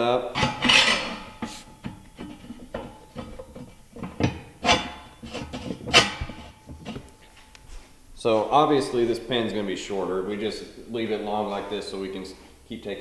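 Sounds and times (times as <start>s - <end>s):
steel clanks and knocks: 0.3s - 7.5s.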